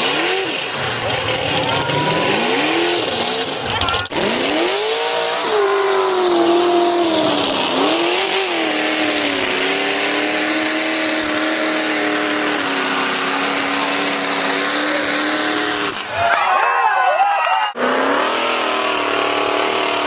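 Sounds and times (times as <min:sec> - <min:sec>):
truck engine revving high: 0:00.0 - 0:16.3, 0:17.6 - 0:20.0.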